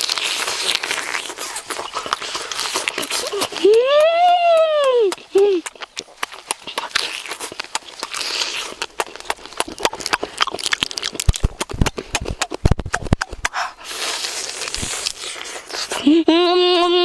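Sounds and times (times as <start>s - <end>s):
shell cracking and rustling: 0.0s - 3.8s, 5.1s - 13.5s
wet chewing and lip-smacking: 0.0s - 17.0s.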